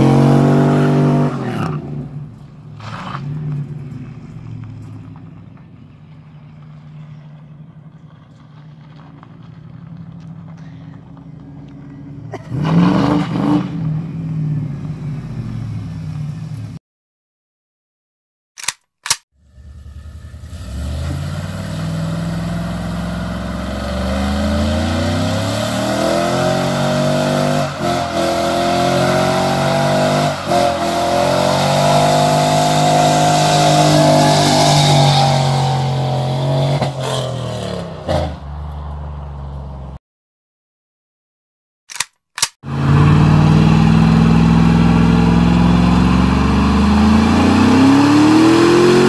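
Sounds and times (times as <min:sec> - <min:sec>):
truck exhaust accelerating: 0:00.0 - 0:16.8, 0:19.4 - 0:40.0, 0:42.6 - 0:49.0.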